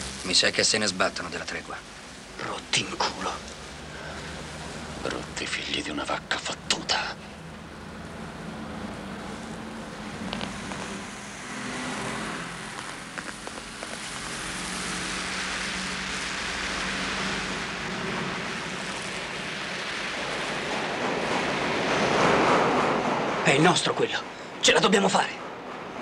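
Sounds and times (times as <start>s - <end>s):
large vehicle rushing rumble: 6.7s - 23.6s.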